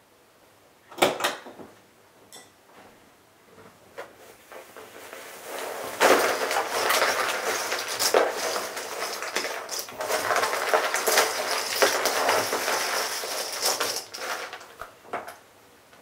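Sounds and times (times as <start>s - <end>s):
puzzle pieces clattering on table: 5.7s - 15.4s.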